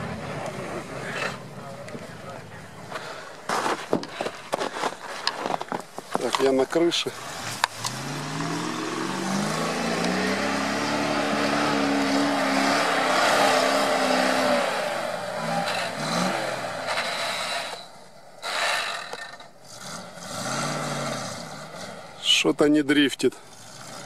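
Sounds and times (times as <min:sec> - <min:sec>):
truck engine revving hard: 0:07.2 - 0:22.4, 0:23.5 - 0:24.0.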